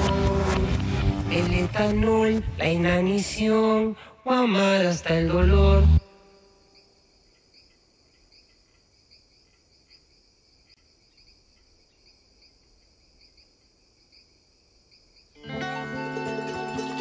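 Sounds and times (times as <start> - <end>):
crickets chirping: 6.1 - 15.4.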